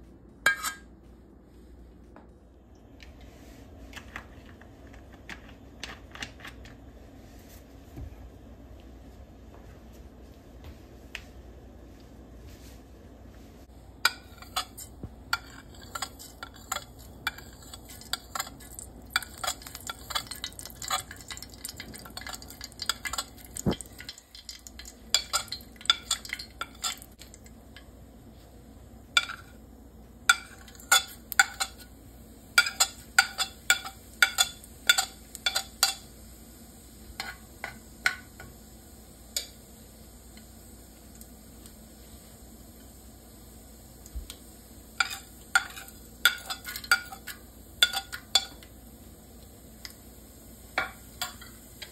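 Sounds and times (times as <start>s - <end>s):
hot oil sizzling and popping: 13.9s - 28.0s, 29.0s - 51.9s.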